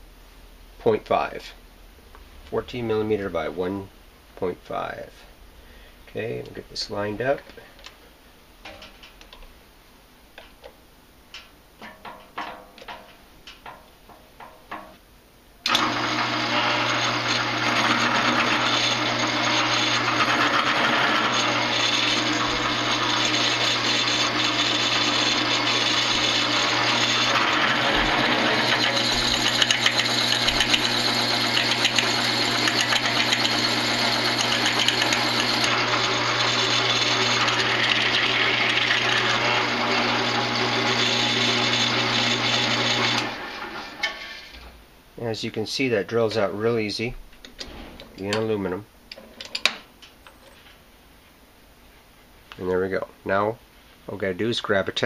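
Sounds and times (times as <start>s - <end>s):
drill press motor running: 15.6s - 44.0s
drill bit drilling into metal: 15.7s - 43.7s.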